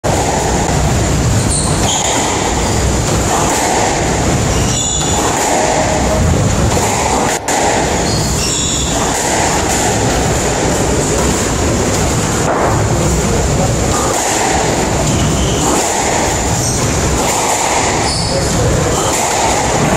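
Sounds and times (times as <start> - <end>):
loud rushing noise: 0.0 - 19.9
shoes squeaking on wooden floor: 4.4 - 5.2, 8.0 - 9.2, 15.1 - 15.8, 17.9 - 18.6.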